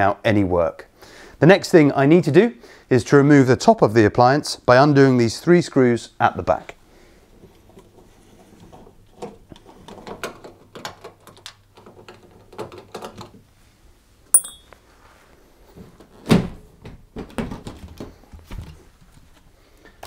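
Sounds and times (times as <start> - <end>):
sharp metallic ping: 14.4 - 14.8.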